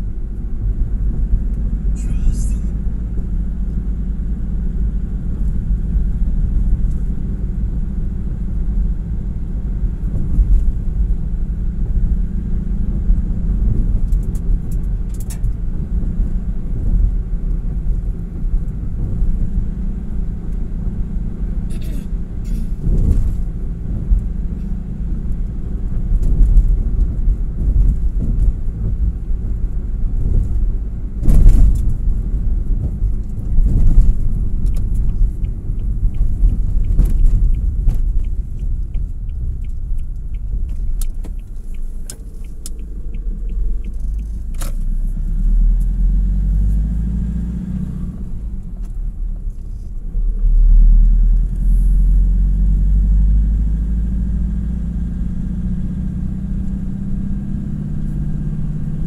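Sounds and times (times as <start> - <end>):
vehicle engine and tyres rumbling: 0.0 - 59.0
turn signal ticking: 31.6 - 46.0.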